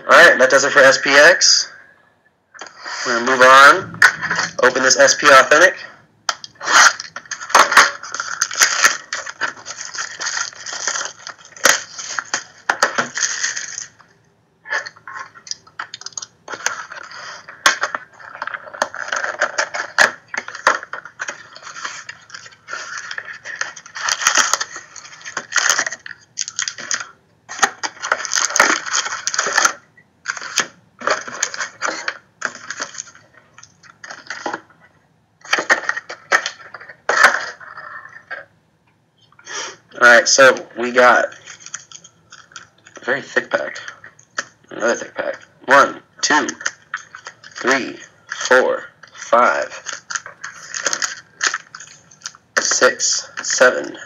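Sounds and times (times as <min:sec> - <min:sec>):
foil packs rustling and crinkling: 0:06.6 - 0:14.0, 0:15.2 - 0:34.6, 0:46.3 - 0:52.8.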